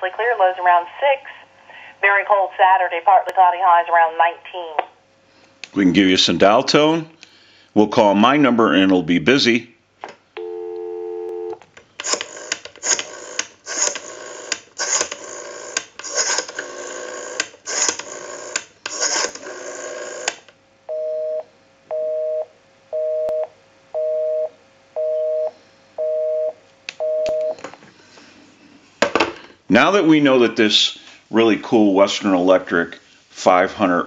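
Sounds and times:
busy signal beeping: 10.4 - 11.6, 20.9 - 27.6
telephone dial tone: 10.4 - 20.3
rotary dial clicking and whirring: 12.0 - 20.5.

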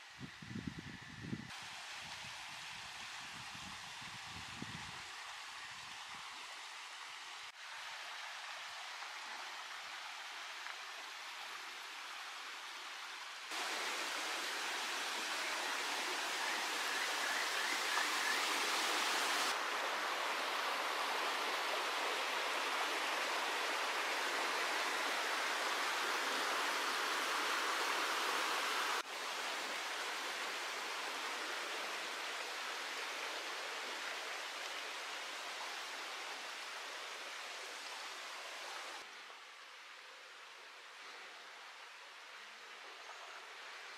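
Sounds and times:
stream rushing over rocks: 1.5 - 43.9.

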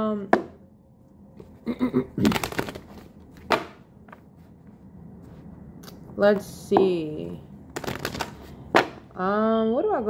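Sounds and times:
cards rustling swish: 7.8 - 8.6
card tapping: 7.8 - 9.0.

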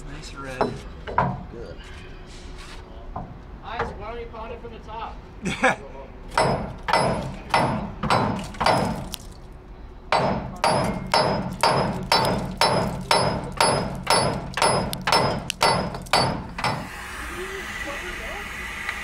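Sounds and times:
hammer pounding metal: 6.3 - 9.2, 10.1 - 17.1.

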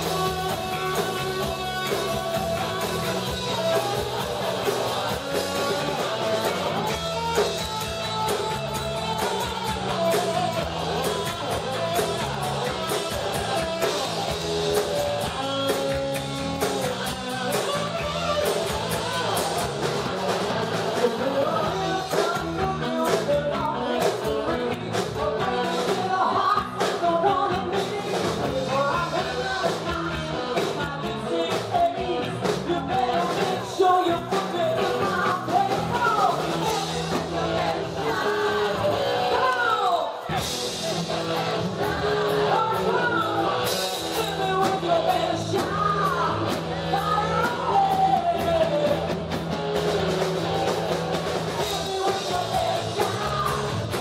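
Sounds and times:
bass guitar: 0.0 - 54.0
drum kit: 0.0 - 54.0
electric guitar: 0.0 - 54.0
woman singing into microphone: 21.1 - 40.2, 41.8 - 49.1, 51.6 - 53.8.

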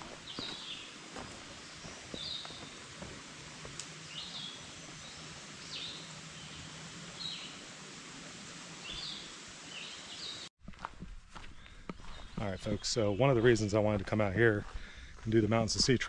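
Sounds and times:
faint footsteps: 0.0 - 4.0, 10.6 - 16.0
songbird chirping: 0.0 - 7.8, 8.8 - 10.5, 11.4 - 16.0
forest background hiss: 0.0 - 10.5.

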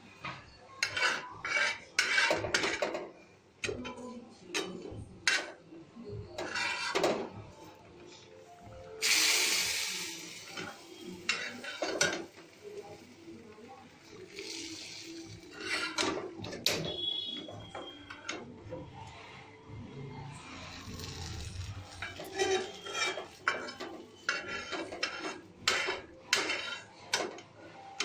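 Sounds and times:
faint music: 0.0 - 28.0
metal spatula scraping a pan: 0.8 - 3.0, 4.6 - 5.6, 6.4 - 7.3, 9.0 - 13.2, 14.0 - 18.5, 20.3 - 27.4
loud hiss: 9.0 - 10.6.

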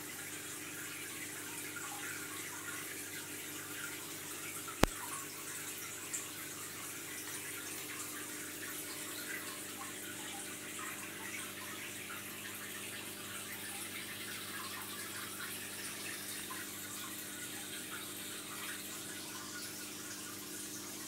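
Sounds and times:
aquarium water trickling: 0.0 - 21.0
faint steady hum: 0.0 - 21.0
small click: 4.8 - 5.0.

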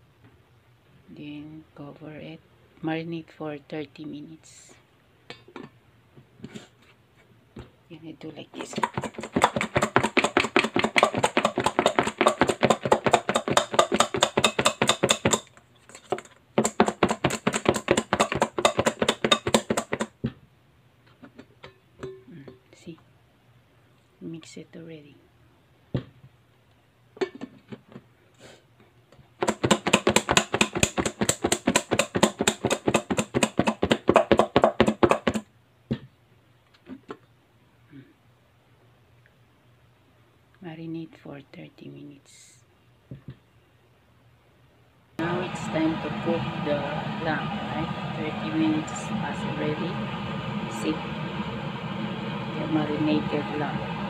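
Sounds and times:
meat shaken in a lidded metal bowl: 8.6 - 20.1.

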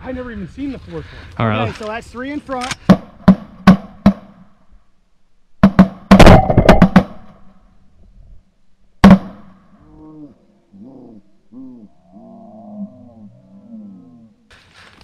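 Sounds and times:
shotgun blasts: 5.7 - 7.4.

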